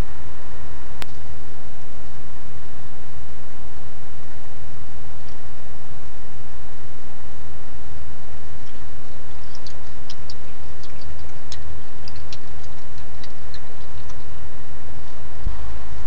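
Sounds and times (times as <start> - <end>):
microphone hiss with low hum: 0.0 - 16.0
raccoon chewing food clicks: 8.6 - 14.4.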